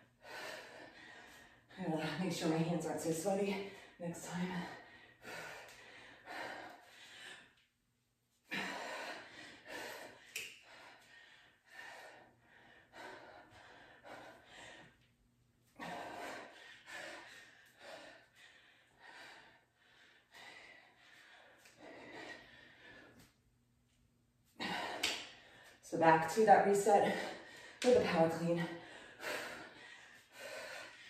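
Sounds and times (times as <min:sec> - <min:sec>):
woman breathing hard: 0:00.0 - 0:02.7, 0:03.4 - 0:07.7, 0:08.4 - 0:23.4, 0:24.5 - 0:25.8, 0:26.8 - 0:31.0.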